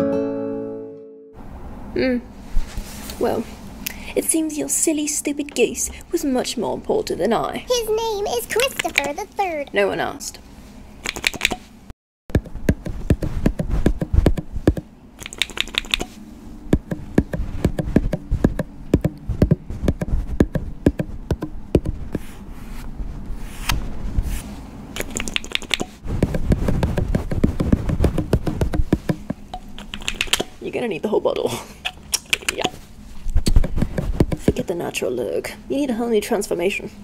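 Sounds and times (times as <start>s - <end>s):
taps and clicks of makeup tools: 8.6s - 9.1s, 11.0s - 11.6s, 12.4s - 16.1s, 16.7s - 22.0s, 25.0s - 30.5s.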